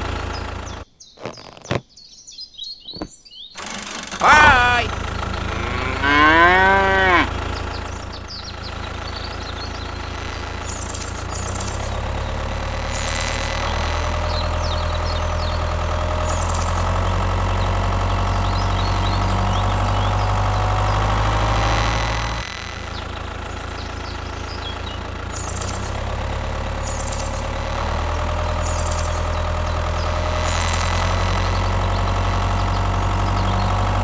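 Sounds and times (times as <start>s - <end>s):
tractor engine running: 0.0s - 1.8s, 2.9s - 34.0s
voice-like call: 4.2s - 6.0s
short high clicks: 10.2s - 12.2s, 12.8s - 14.6s, 26.8s - 29.5s, 30.2s - 32.6s.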